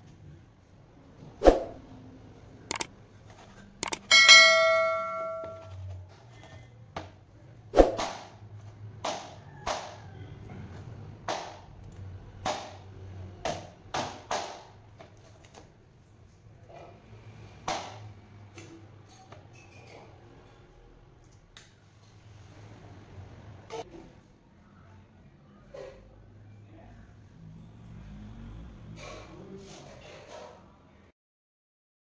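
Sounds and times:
metallic ring: 0:03.8 - 0:05.8.

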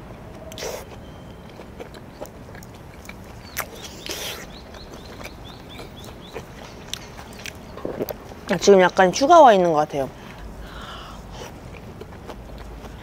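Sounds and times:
person chewing with wet mouth clicks: 0:00.4 - 0:08.2
small bird chirping: 0:03.3 - 0:07.8.

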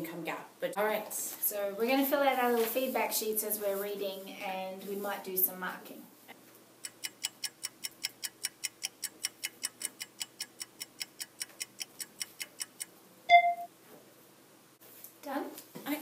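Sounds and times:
kitchen timer ticking: 0:06.8 - 0:12.9
short bell ding: 0:13.3 - 0:13.7.

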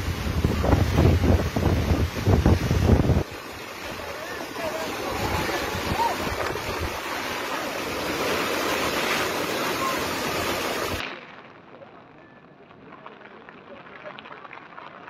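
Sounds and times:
wind buffeting microphone: 0:00.0 - 0:11.0
rushing river water: 0:00.0 - 0:11.3.

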